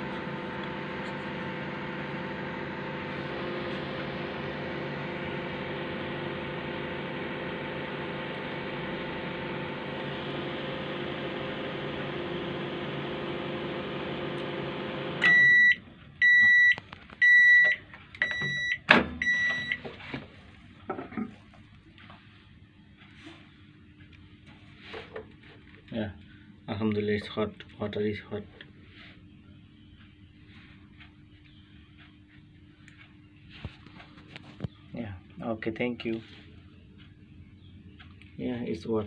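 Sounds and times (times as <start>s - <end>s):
microwave beeps: 0.0s - 11.7s, 12.7s - 19.9s
microwave oven hum: 0.0s - 39.0s.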